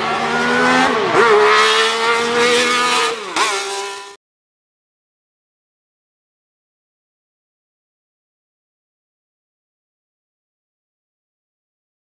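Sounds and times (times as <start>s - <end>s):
race car engine high revs: 0.0s - 4.2s.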